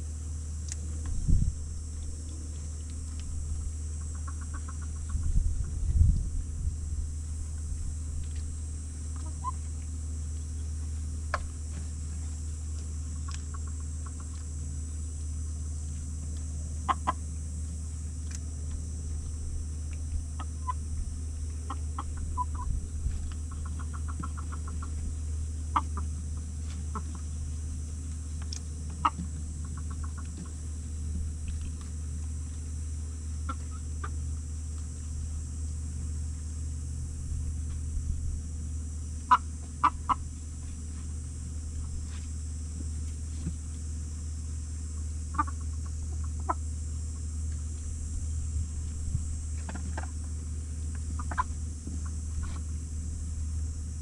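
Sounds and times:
chickens clucking: 4.0 - 6.3, 7.5 - 14.6, 15.9 - 17.3, 20.0 - 32.7, 33.3 - 35.2, 39.2 - 43.9, 45.2 - 46.8, 48.8 - 52.9.

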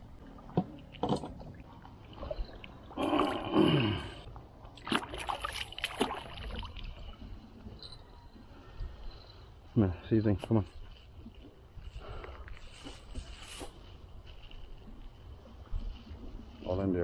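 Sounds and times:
water splashing and sloshing: 0.0 - 7.9.

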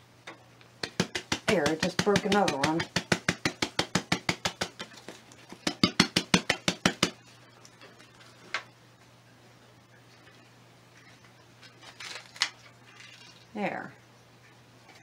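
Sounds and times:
tapping on plastic plant pot: 0.8 - 7.2.

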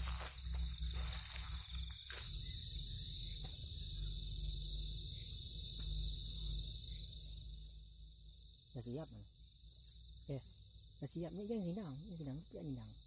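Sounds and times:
insect pulsing higher trill: 0.0 - 13.0
insect steady high trill: 0.0 - 13.0.

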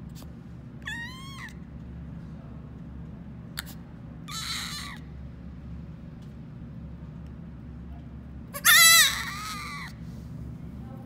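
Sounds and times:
goat kid bleating: 8.6 - 9.9.

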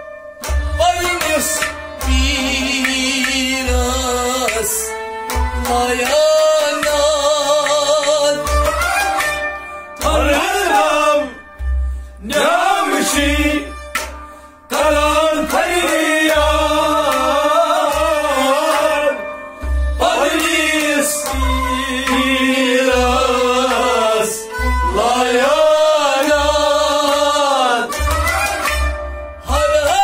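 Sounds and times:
plucked lute: 0.0 - 26.4
men singing devotional song: 0.7 - 5.0, 5.6 - 8.6, 10.0 - 11.5, 12.2 - 14.1, 14.7 - 28.2, 29.4 - 30.0.

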